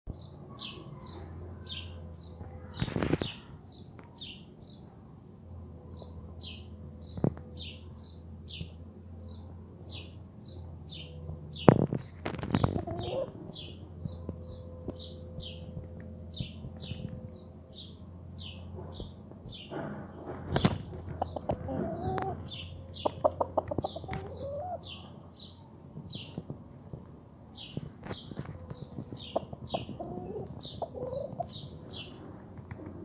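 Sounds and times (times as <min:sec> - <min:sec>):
small bird chirping: 0:27.5 - 0:32.2.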